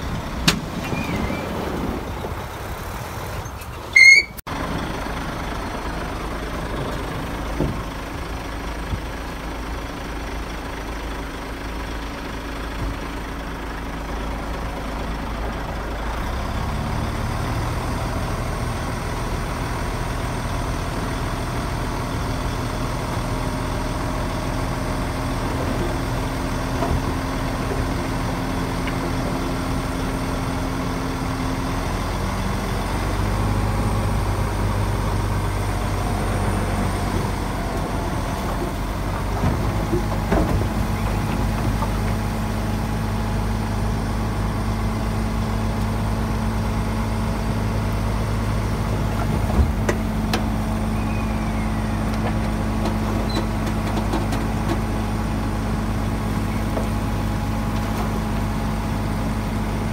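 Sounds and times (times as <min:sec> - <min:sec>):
heavy diesel engine running: 0:00.0 - 0:59.9.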